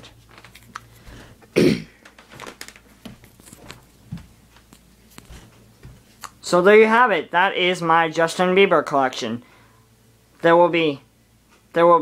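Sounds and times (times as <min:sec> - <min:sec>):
person coughing: 0:01.5 - 0:02.0.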